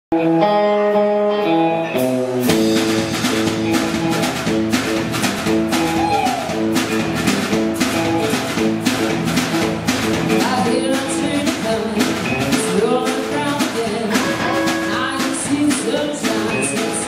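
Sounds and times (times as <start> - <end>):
guitars: 0.1 - 17.0
drums and bass beat: 0.2 - 17.0.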